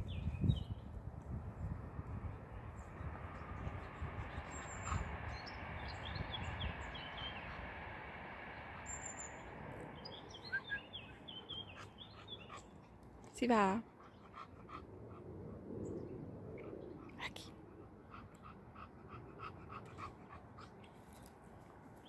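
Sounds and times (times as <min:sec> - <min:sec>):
small birds chirping: 0:02.3 - 0:14.9.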